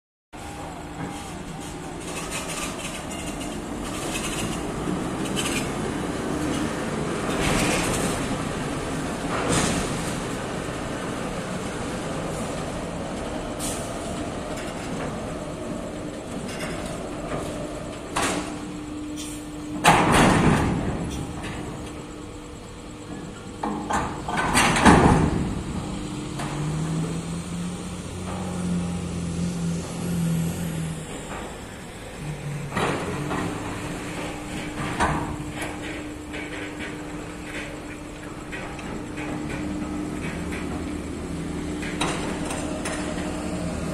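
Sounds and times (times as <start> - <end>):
machinery hum: 0.4 - 43.9.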